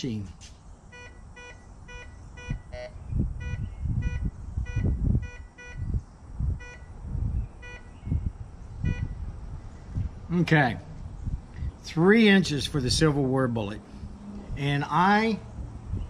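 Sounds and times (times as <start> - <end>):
metal detector beeps: 0.9 - 5.9, 6.6 - 6.9, 7.6 - 7.9.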